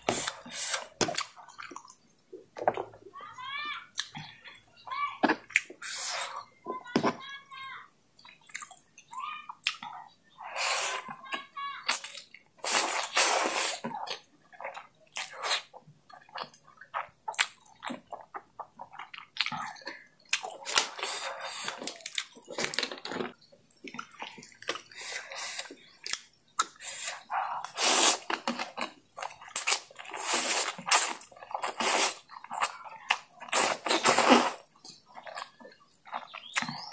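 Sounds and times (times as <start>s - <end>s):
noodles being slurped: 0.0s - 1.8s, 12.0s - 15.7s, 20.4s - 23.3s, 26.6s - 35.4s
chewing and mouth clicks: 0.0s - 2.0s, 8.2s - 10.2s, 13.8s - 22.7s, 23.3s - 36.9s.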